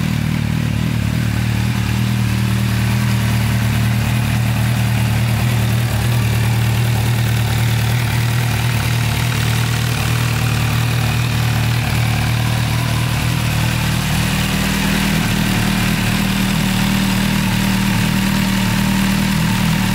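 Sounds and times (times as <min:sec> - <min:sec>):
motorcycle engine idling: 0:00.0 - 0:19.9.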